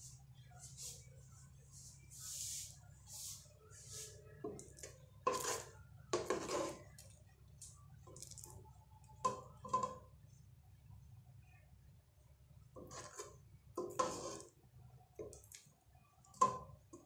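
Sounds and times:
metal spoon scraping a pot: 5.2 - 7.0, 12.8 - 14.6.

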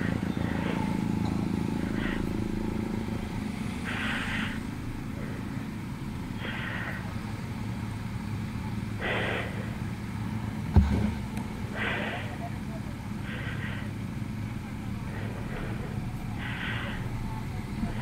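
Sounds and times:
motorcycle engines idling: 0.0 - 18.0
sharp thump: 10.7 - 11.2.

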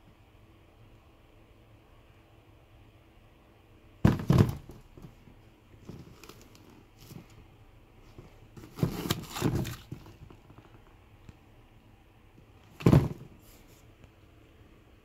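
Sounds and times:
packing paper rustling: 8.6 - 10.2.

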